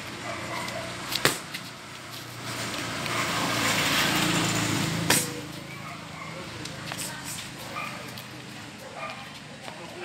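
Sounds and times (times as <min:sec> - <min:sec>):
vehicle running: 0:00.0 - 0:10.0
boxing glove punch smack: 0:01.2 - 0:01.5.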